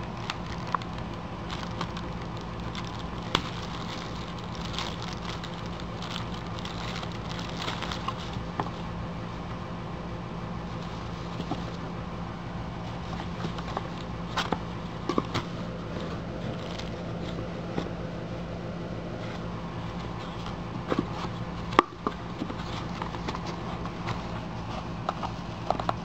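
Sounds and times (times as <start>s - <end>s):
steady low hum: 0.0s - 26.0s
packaging rustling and tapping: 0.1s - 8.8s.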